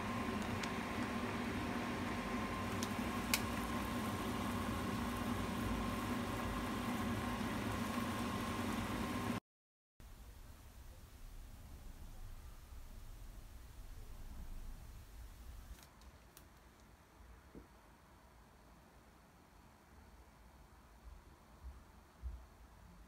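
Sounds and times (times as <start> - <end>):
mechanical kitchen hum: 0.0 - 9.4
noodles boiling in a pot: 0.0 - 9.4.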